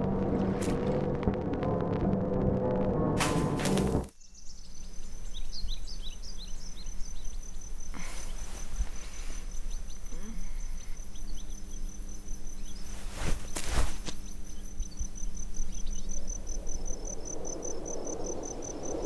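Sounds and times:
bursts of noise: 0.0 - 4.1
low hum: 0.0 - 4.1
crickets chirring: 4.2 - 19.0.

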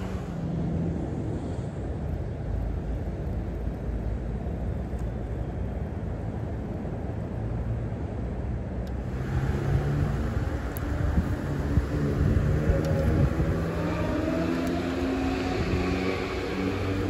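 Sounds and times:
road traffic rumble: 0.0 - 17.0
low hum: 8.8 - 17.0.

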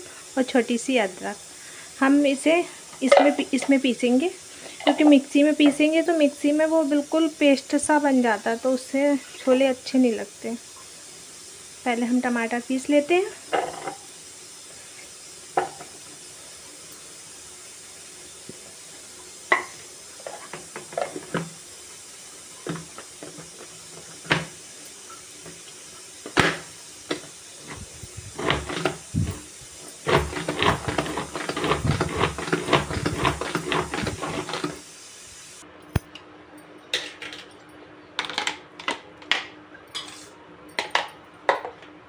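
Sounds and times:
food chopper knocks and clicks: 30.1 - 34.8.

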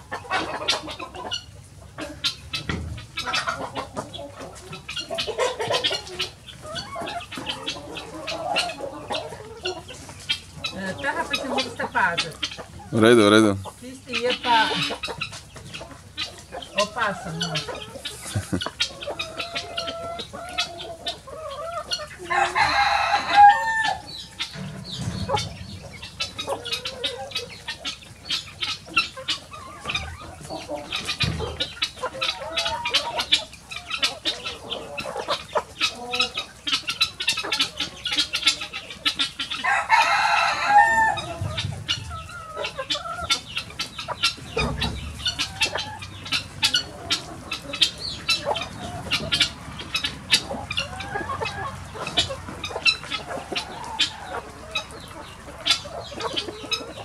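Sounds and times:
hens clucking: 0.0 - 57.0
rooster crowing: 22.2 - 24.2, 39.6 - 41.3.

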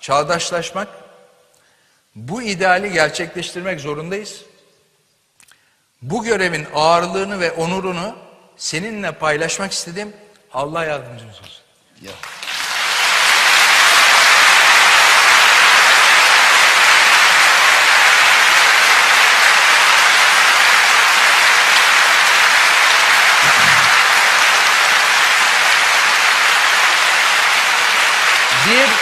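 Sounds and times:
large audience applauding: 12.1 - 29.0.

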